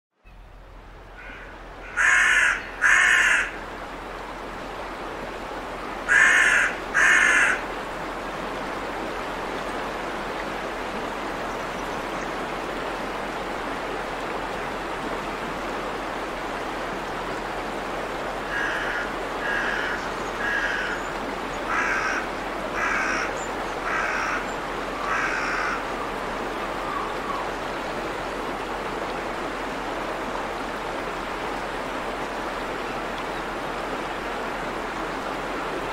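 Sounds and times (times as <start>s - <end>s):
water rushing over a weir: 0.4s - 35.9s
bird calling: 1.2s - 3.6s, 6.1s - 7.6s, 18.5s - 25.9s, 26.7s - 27.6s.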